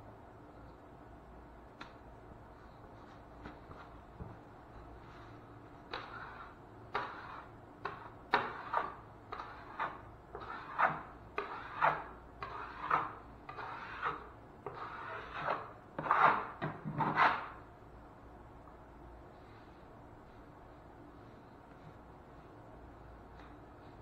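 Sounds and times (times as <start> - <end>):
drywall knife scraping compound: 5.8 - 17.6.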